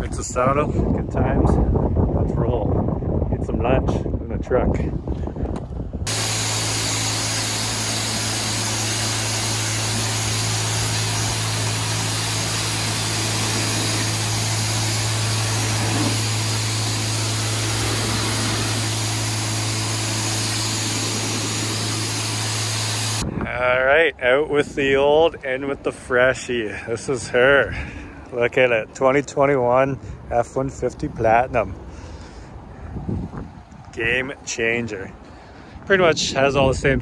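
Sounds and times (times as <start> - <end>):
pressure washer spraying water: 6.1 - 23.2.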